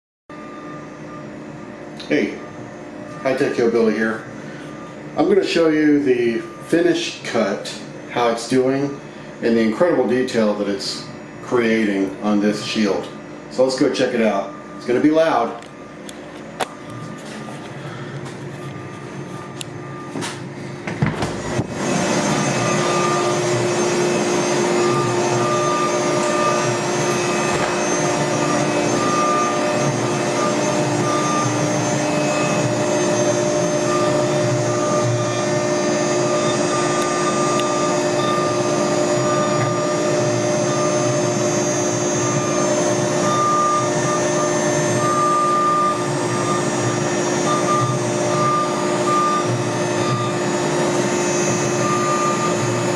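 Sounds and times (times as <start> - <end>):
router carving wood: 21.2 - 52.9.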